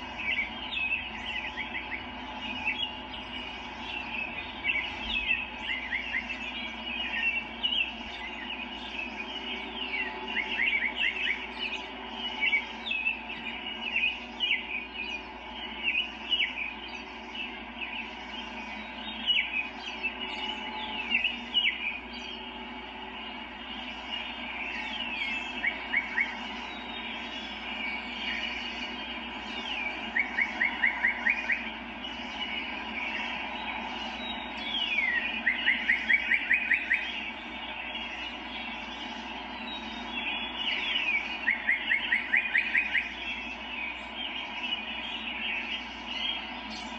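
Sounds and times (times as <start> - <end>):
background hum: 0.0 - 46.9
songbirds chirping: 0.0 - 46.9.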